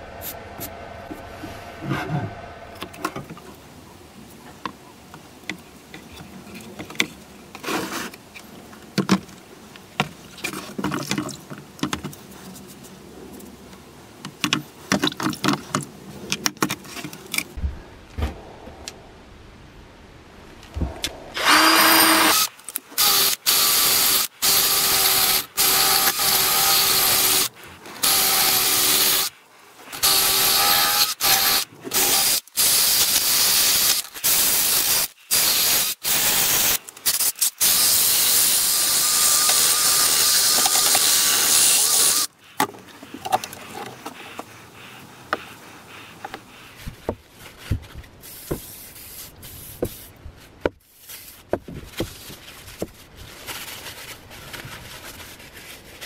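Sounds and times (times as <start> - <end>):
drill motor whine: 21.4 - 29.3, 38.6 - 42.3.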